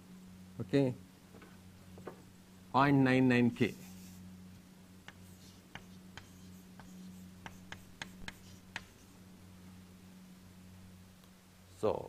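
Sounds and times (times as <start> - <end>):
low electrical hum: 0.0 - 12.0
pen taps and strokes writing: 5.0 - 9.0.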